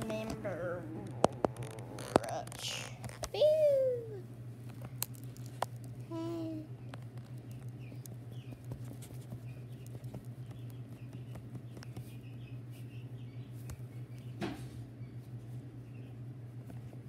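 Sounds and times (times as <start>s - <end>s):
low machine hum: 0.0s - 17.0s
baby chicks peeping: 6.0s - 17.0s.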